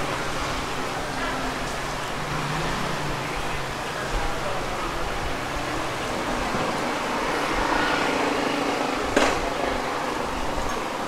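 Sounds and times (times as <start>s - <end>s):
street stall background hum: 0.0s - 11.0s
sharp clack: 9.1s - 9.5s.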